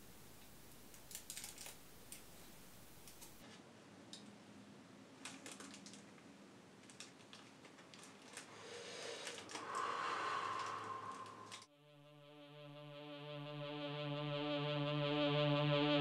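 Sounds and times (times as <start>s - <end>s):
packet crinkling in fingers: 0.9s - 2.3s, 5.2s - 6.2s, 6.8s - 8.5s
hiss: 8.6s - 11.7s.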